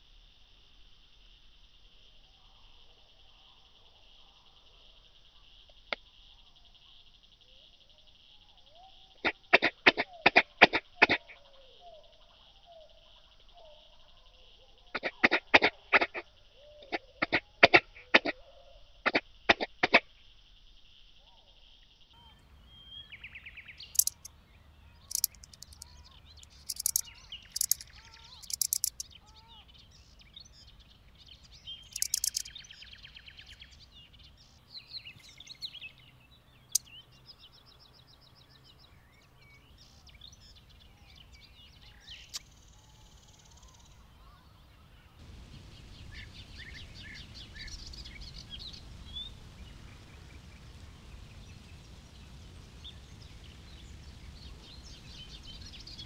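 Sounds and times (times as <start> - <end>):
locusts stridulating: 22.2 - 37.9, 45.2 - 56.0
birds chirping: 22.2 - 56.0.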